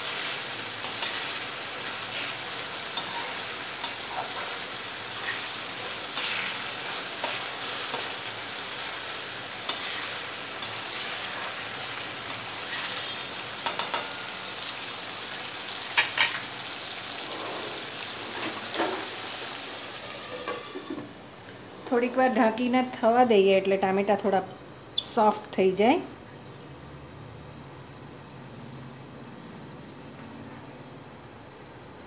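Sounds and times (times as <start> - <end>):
tomatoes sizzling in hot oil: 0.0 - 32.0
spatula scraping a metal pan: 2.1 - 8.2, 9.7 - 11.6, 12.3 - 14.4, 20.0 - 21.0
spatula tapping pan: 2.9 - 4.3, 13.6 - 14.3.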